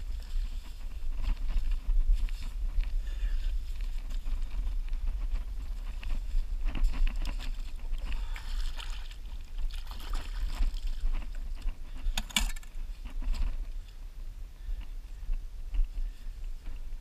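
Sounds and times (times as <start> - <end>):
wind rumbling on microphone: 0.0 - 17.0
small wet splashes: 8.2 - 11.0.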